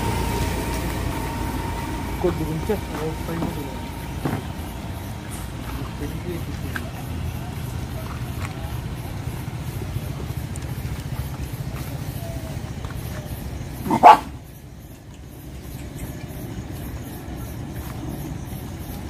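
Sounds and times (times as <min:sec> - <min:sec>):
steady low rumble: 0:00.0 - 0:19.0
dog barking: 0:13.8 - 0:14.4.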